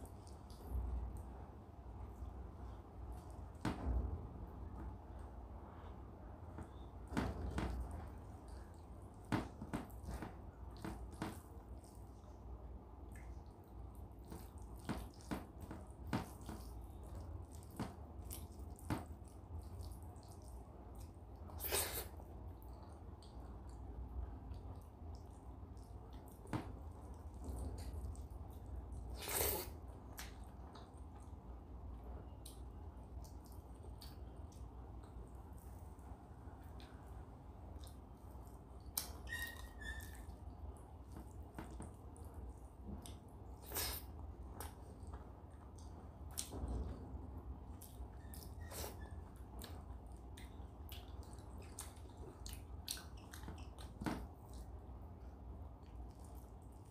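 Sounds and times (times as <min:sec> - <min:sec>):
wet chewing: 0:07.5 - 0:46.6, 0:47.6 - 0:56.9
lip smacks: 0:37.7 - 0:46.7, 0:47.7 - 0:56.9.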